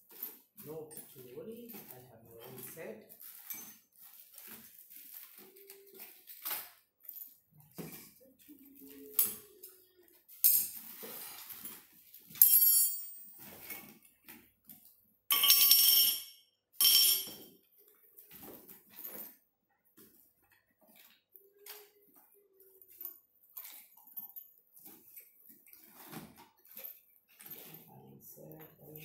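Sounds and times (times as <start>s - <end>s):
metal tools clinking and clattering: 0.0s - 8.2s, 10.3s - 14.1s, 15.3s - 17.6s, 20.4s - 27.9s.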